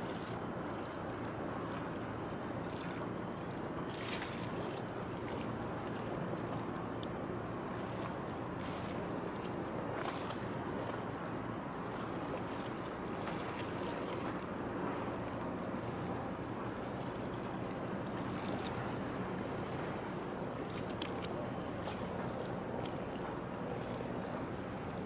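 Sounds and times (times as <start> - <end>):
choppy water slapping: 0.0 - 25.0
brief water splashes: 3.9 - 5.5.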